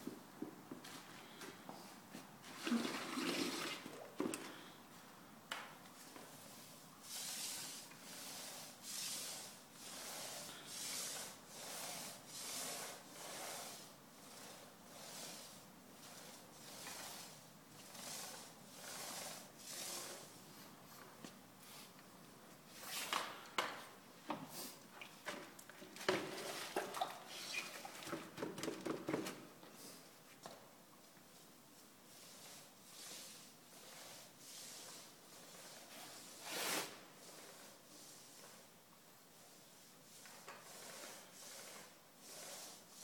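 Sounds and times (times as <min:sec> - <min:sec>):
applicator rubbing wooden floor: 0:06.1 - 0:20.4, 0:32.2 - 0:38.7, 0:39.3 - 0:43.0.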